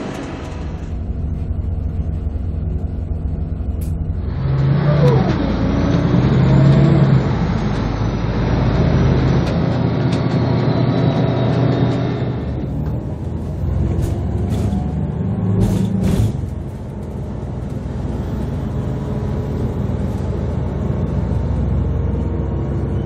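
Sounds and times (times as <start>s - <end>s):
high whine: 0.0s - 13.9s
bus engine and road noise: 0.0s - 23.0s.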